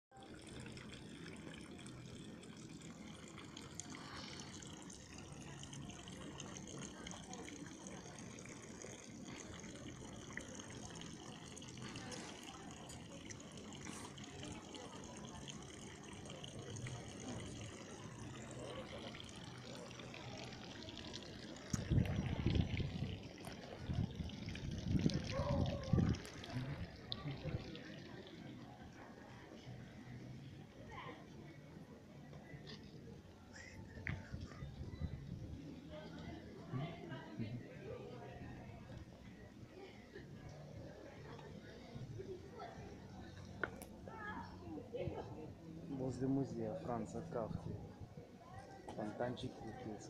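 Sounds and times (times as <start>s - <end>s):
fountain water trickling: 0.1s - 50.0s
faint voices: 0.2s - 50.0s
low rumble on microphone: 21.7s - 27.7s.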